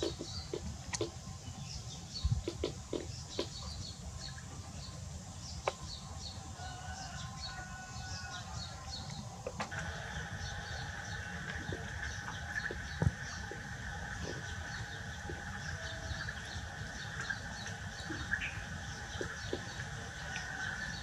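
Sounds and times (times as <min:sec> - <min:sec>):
small birds chirping: 0:00.0 - 0:21.0
steady low rumble: 0:08.6 - 0:21.0.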